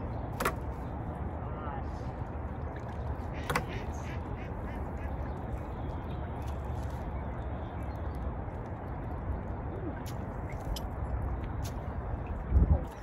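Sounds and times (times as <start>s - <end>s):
steady low rumble: 0.0s - 13.0s
bird quacking calls: 3.3s - 5.4s.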